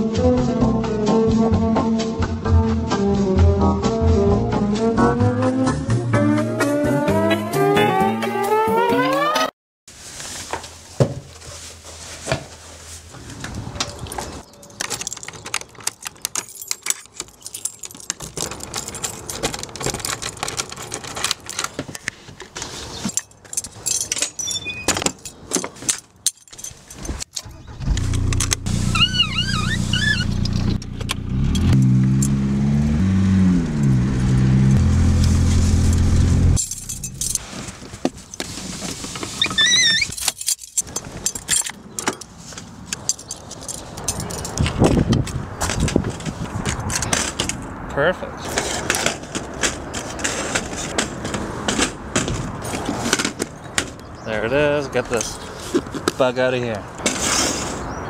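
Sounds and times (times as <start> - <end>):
keys jangling: 13.9 - 21.8, 23.1 - 27.4, 36.6 - 37.4, 39.8 - 45.0
car engine revving: 27.6 - 36.8.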